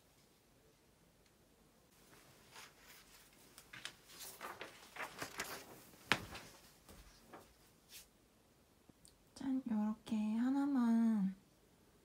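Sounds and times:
paper poster rustling: 2.0 - 8.1.

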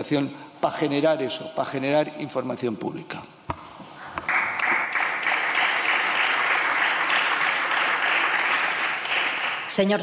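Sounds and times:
group applauding: 4.2 - 9.8.

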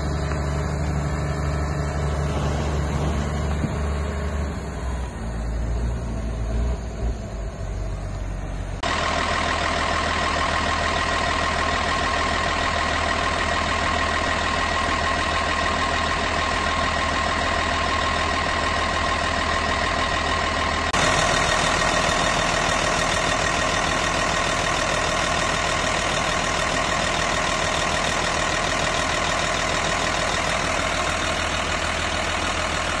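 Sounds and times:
steady whine: 0.0 - 6.2
diesel engine idling: 0.0 - 33.0.

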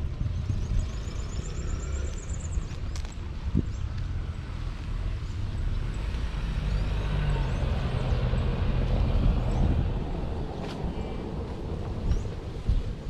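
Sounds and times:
motor vehicle passing: 0.4 - 12.7.

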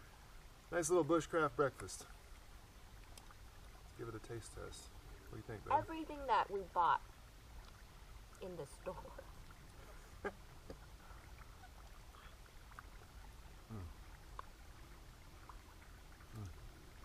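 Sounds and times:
low voice hum: 13.6 - 14.2, 16.2 - 16.8.

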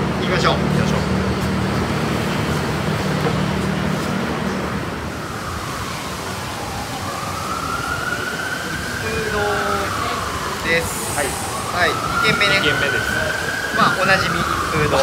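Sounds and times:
low traffic rumble: 0.0 - 15.0
siren wailing: 4.7 - 15.0.

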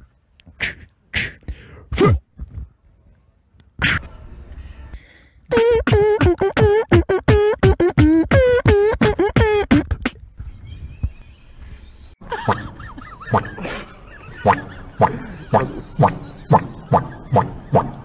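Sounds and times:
beatboxing: 0.4 - 2.7, 3.8 - 4.1, 5.5 - 10.2, 14.4 - 18.0.

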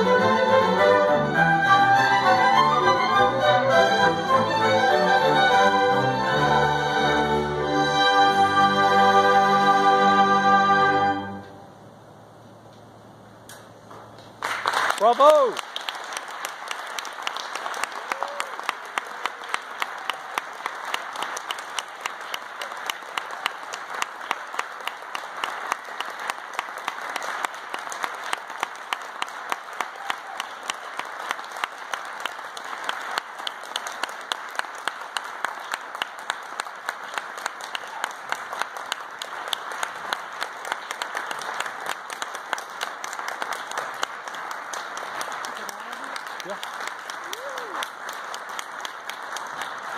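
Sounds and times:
audience applauding: 14.2 - 49.9.

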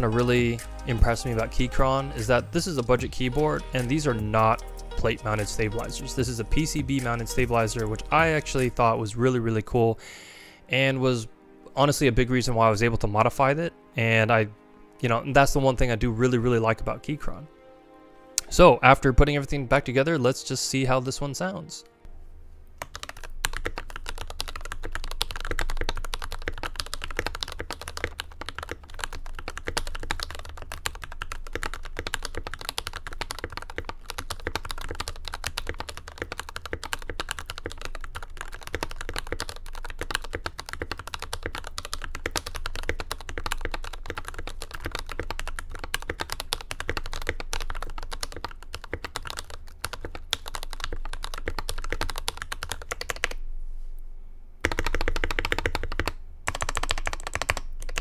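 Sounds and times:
mechanical keyboard typing: 22.8 - 53.4, 54.6 - 58.0.

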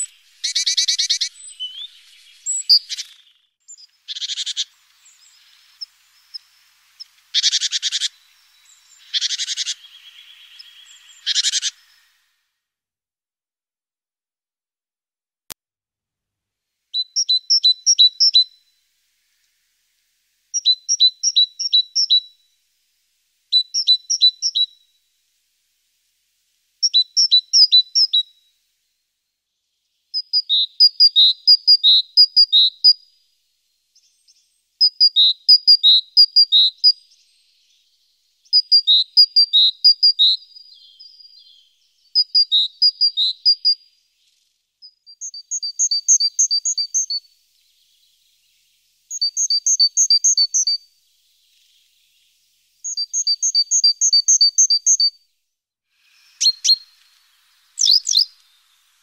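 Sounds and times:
songbird chirping: 0.0 - 12.6, 16.9 - 59.0.

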